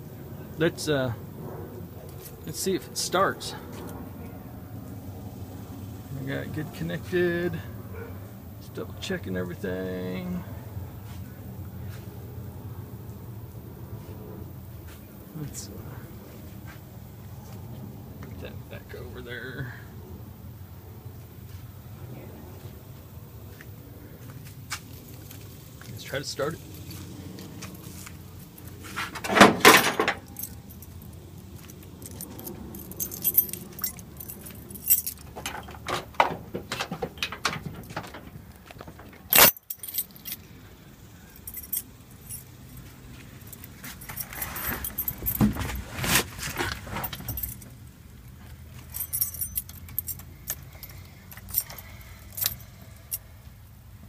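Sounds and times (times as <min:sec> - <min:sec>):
handling clatter: 0:24.8 - 0:40.5, 0:41.4 - 0:53.2
keys jingling: 0:24.8 - 0:53.4.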